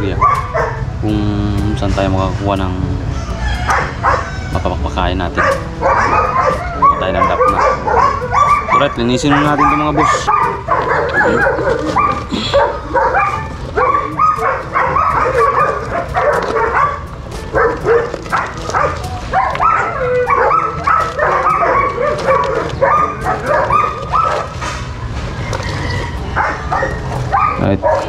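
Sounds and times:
dogs barking and yapping: 0:00.0 - 0:01.1, 0:01.8 - 0:28.0.

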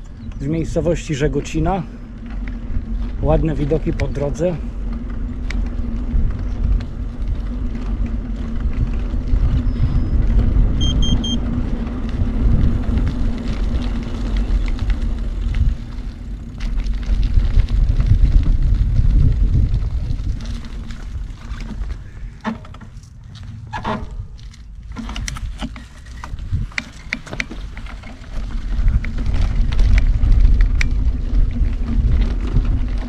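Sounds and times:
bike tyres rolling on asphalt: 0:00.0 - 0:33.0
wind rumble on microphone: 0:00.0 - 0:33.0
short high electronic beeps: 0:10.8 - 0:11.4.

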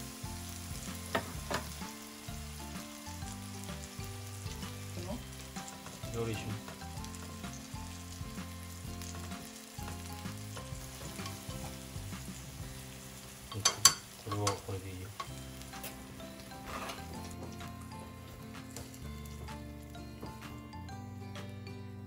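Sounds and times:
fish sizzling in a frying pan: 0:00.0 - 0:20.5
vegetables stir-fried with chopsticks: 0:00.0 - 0:20.5
cookware clacks: 0:13.5 - 0:16.0.

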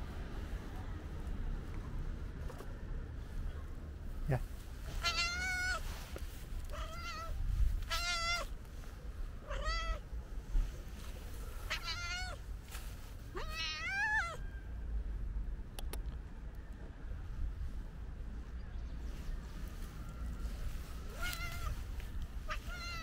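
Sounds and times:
cat meowing: 0:05.0 - 0:05.8, 0:06.7 - 0:08.6, 0:09.4 - 0:10.0, 0:11.7 - 0:12.4, 0:13.3 - 0:14.5, 0:21.0 - 0:21.8, 0:22.4 - 0:23.0.

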